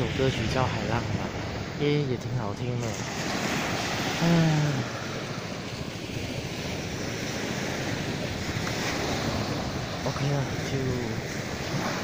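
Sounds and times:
person's voice: 0.0 - 3.0, 4.2 - 5.0, 10.0 - 11.2
waves washing on a beach: 0.0 - 12.0
wind on microphone: 0.0 - 12.0.

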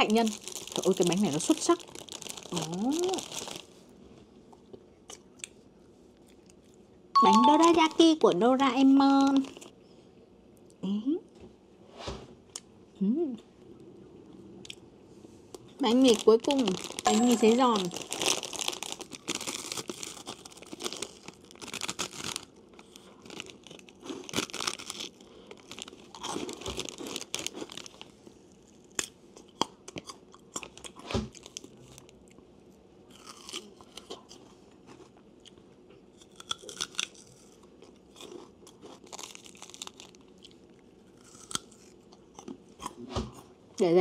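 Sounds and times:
crunching dried bread: 0.0 - 4.0, 8.9 - 9.8, 15.5 - 32.5, 33.1 - 43.0
chewing fresh fruit: 4.5 - 6.9, 33.1 - 43.4.

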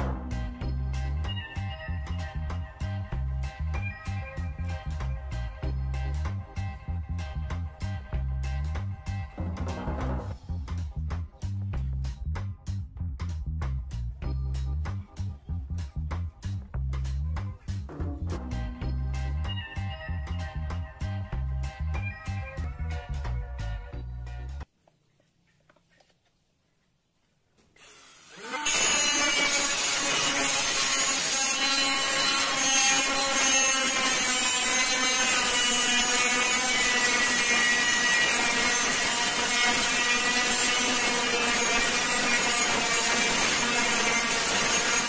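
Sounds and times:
angle grinder cutting metal pipe: 27.8 - 45.0.

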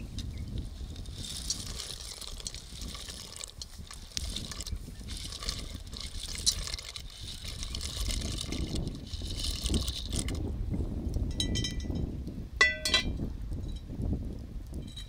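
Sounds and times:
dry pasta tumbling into pot: 0.1 - 10.4
boiling water bubbling: 0.3 - 10.4
pasta clicks and splashes: 0.5 - 10.4.

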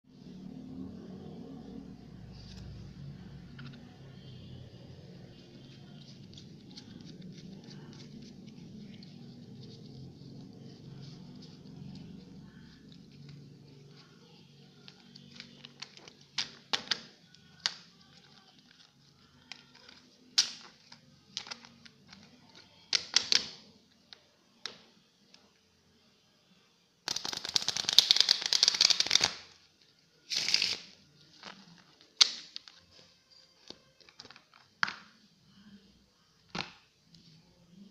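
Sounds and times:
playing cards shuffled: 5.6 - 13.3, 27.1 - 29.6, 30.3 - 32.8.

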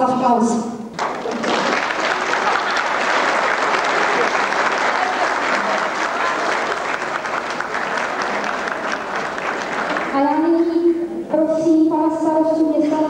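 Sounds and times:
large audience applauding: 0.9 - 10.3.

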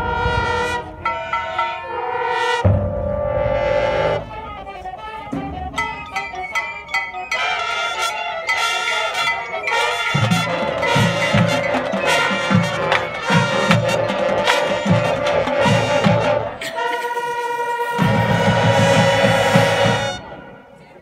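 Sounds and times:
held brass chord: 0.0 - 21.0
marching band playing: 0.0 - 21.0
heavy low drum hits: 2.6 - 6.3.

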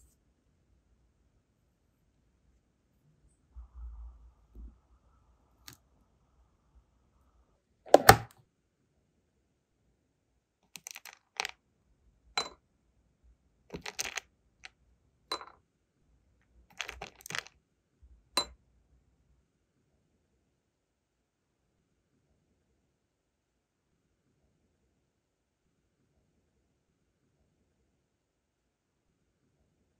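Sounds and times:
wax pieces clicking in plastic box: 10.8 - 11.5, 13.7 - 14.2, 16.7 - 17.5.

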